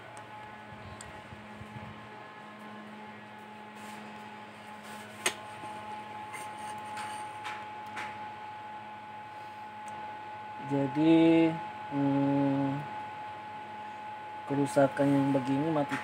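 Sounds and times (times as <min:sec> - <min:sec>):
electrical hum: 0:00.0 - 0:16.0
faint scuffs: 0:03.4 - 0:05.3.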